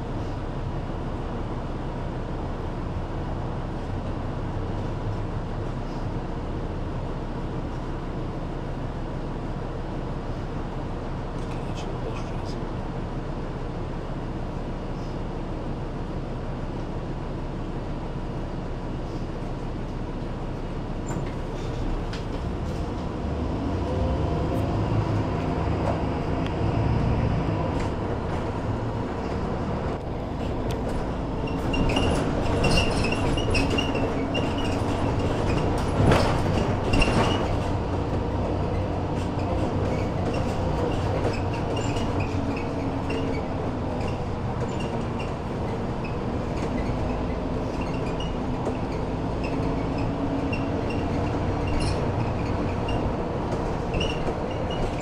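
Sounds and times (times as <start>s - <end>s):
bus engine and running noise: 0.0s - 55.0s
knocks and rattles: 30.4s - 38.3s.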